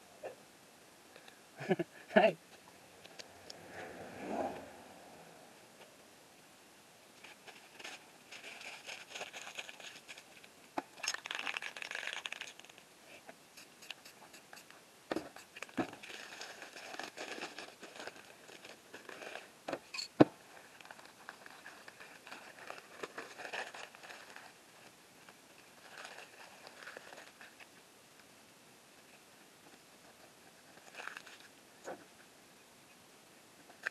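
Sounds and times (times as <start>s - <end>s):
paper crinkling and scraping: 7.2s - 12.8s, 13.6s - 19.5s, 20.5s - 27.8s, 30.0s - 32.0s.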